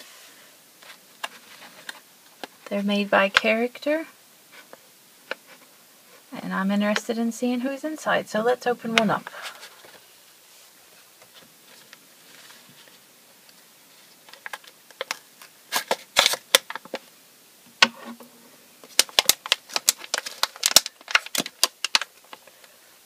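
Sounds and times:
foil packet crackling: 14.1s - 17.0s, 18.8s - 22.8s.

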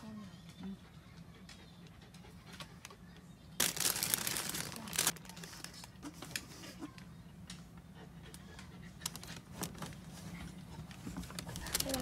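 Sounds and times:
rustling crinkling noise: 3.6s - 6.6s, 9.0s - 12.0s.

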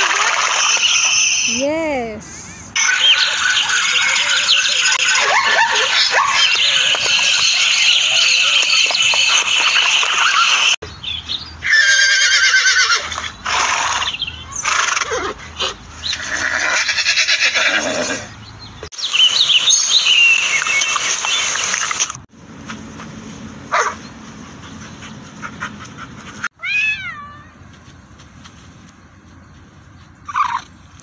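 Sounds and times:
horse whinnying: 11.6s - 15.4s, 16.1s - 18.3s.

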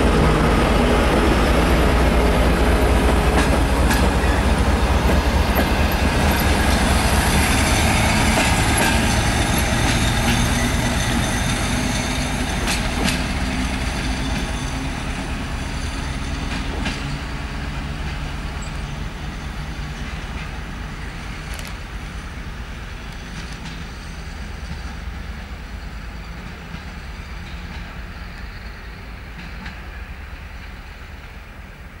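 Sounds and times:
train rumble: 0.0s - 32.0s
wheels clicking on rails: 3.0s - 15.0s.

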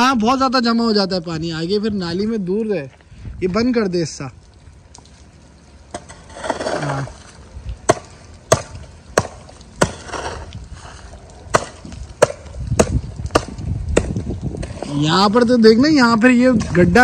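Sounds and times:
hoe chopping into wet soil: 5.9s - 7.2s, 7.8s - 10.6s, 11.5s - 15.0s.

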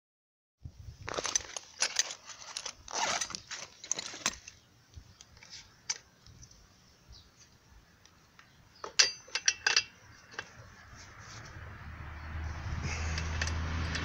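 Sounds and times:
metal tools clinking in pouch: 1.0s - 4.6s.

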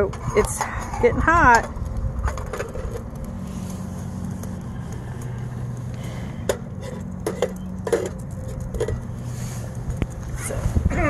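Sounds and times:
low wind rumble: 0.0s - 11.0s.

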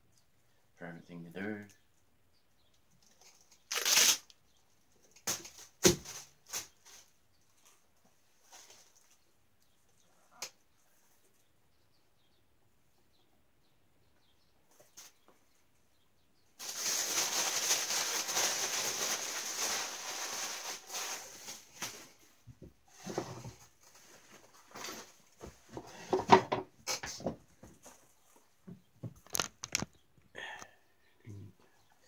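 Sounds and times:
plastic bag crinkling: 16.6s - 22.2s.

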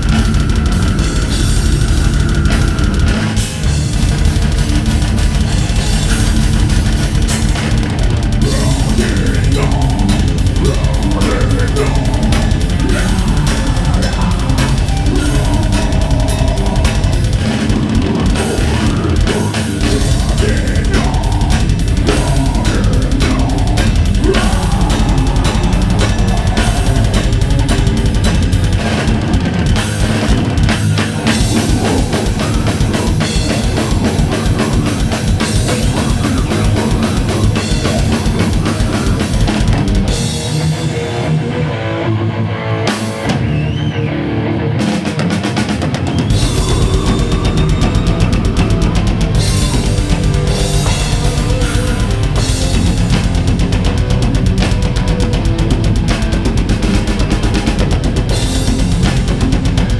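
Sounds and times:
death metal band playing: 0.0s - 59.9s.

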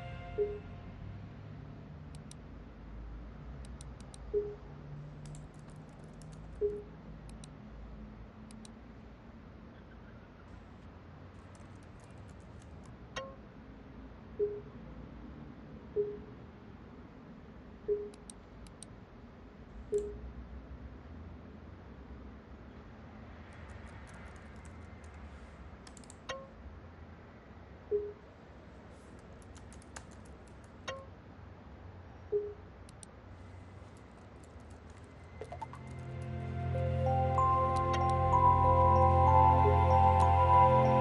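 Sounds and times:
laptop keyboard typing: 29.2s - 30.9s, 33.8s - 36.1s
low steady hum: 32.4s - 41.0s
short low message ping: 36.8s - 41.0s.

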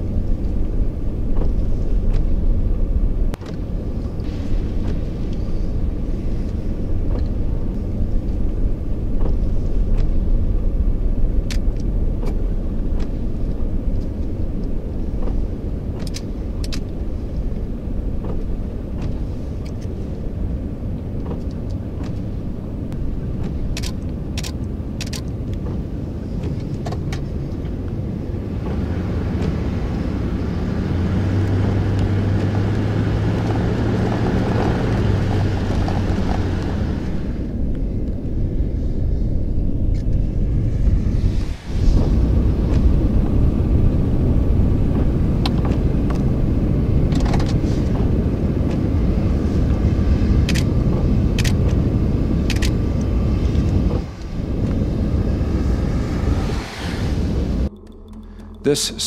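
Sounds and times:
steady low rumble: 0.0s - 59.0s
sharp clicks: 22.9s - 27.2s, 50.4s - 51.8s, 52.4s - 54.8s, 57.7s - 58.7s.

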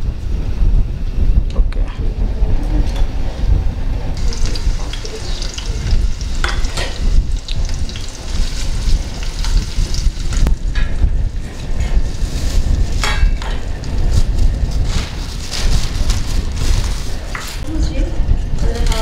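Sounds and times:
onions sizzling in hot oil: 4.2s - 11.4s.

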